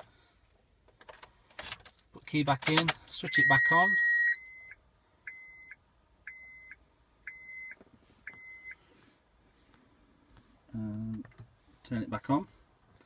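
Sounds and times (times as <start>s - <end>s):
dashboard warning chime: 3.2s - 8.8s
short beeps: 3.2s - 8.8s.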